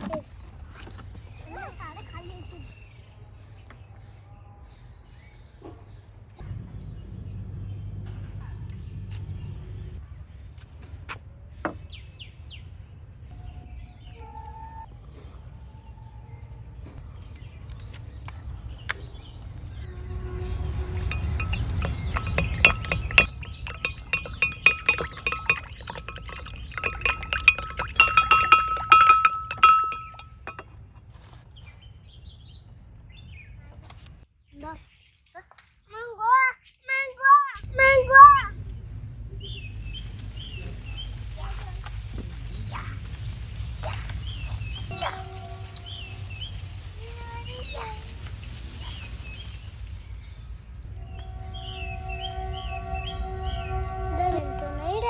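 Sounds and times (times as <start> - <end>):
birds chirping: 0.0 - 30.8, 37.6 - 55.0
low steady rumble: 6.4 - 10.5, 37.6 - 55.0
stick tapping ceramic bowl: 21.1 - 30.7.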